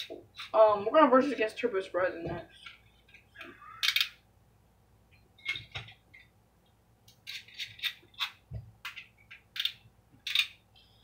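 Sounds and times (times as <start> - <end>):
plastic spinning tops clicking: 3.8 - 4.2, 7.1 - 10.6.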